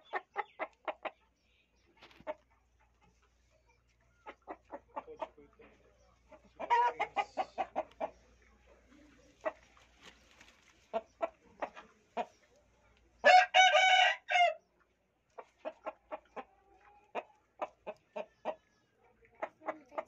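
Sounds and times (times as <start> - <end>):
rooster clucking: 2.0 - 5.6, 6.3 - 8.3, 15.4 - 18.6
rooster crowing: 13.3 - 14.6.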